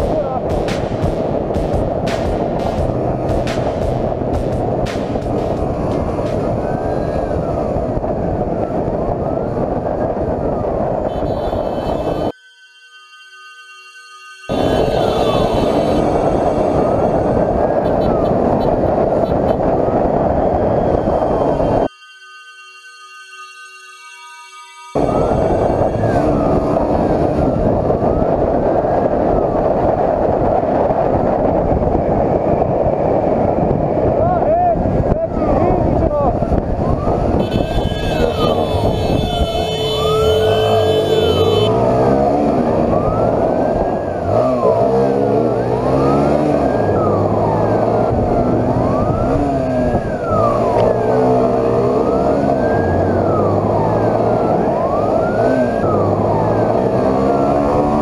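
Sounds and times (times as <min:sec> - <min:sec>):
motorcycle engine speeding up: 0:00.0 - 0:11.5, 0:35.6 - 0:58.0
wind rush on microphone: 0:00.0 - 0:12.4, 0:14.5 - 0:21.9, 0:25.0 - 0:58.0
siren wailing: 0:05.5 - 0:30.7, 0:35.2 - 0:58.0.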